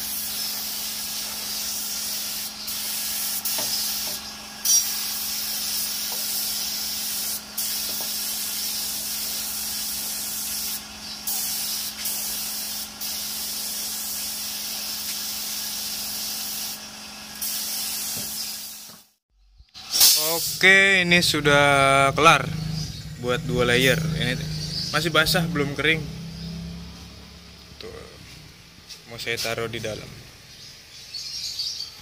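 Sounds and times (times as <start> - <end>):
spray gun hissing: 0.0 - 19.2, 20.0 - 20.8.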